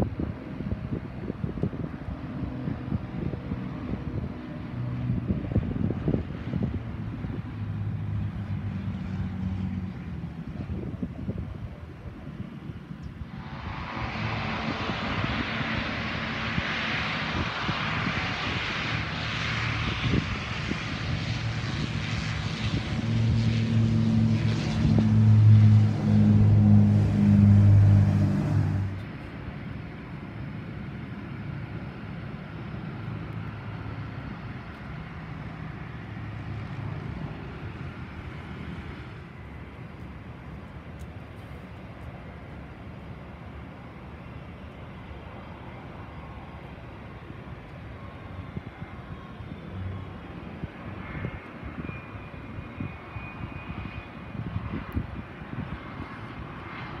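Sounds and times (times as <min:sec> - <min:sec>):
outdoor background noise: 0:00.0 - 0:57.0
propeller plane rumble: 0:00.0 - 0:57.0
truck engine running loud: 0:21.4 - 0:29.0.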